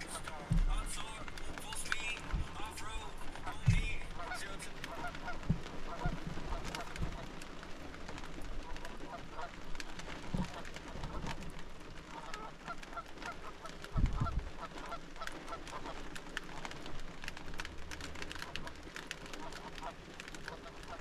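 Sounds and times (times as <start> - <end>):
waterfowl honking: 0.0 - 7.3, 8.6 - 9.5, 12.1 - 15.9
dull low thump: 0.5 - 1.0, 3.6 - 4.0.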